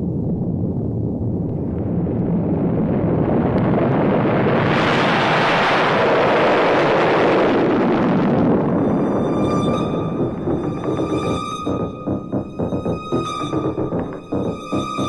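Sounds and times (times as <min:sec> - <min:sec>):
electronic music hissing noise: 0:08.7 - 0:15.0.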